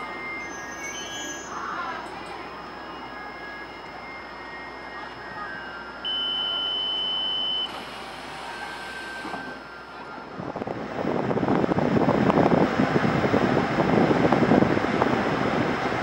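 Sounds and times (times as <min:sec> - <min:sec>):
high-pitched electronic door beep: 0:05.0 - 0:07.8.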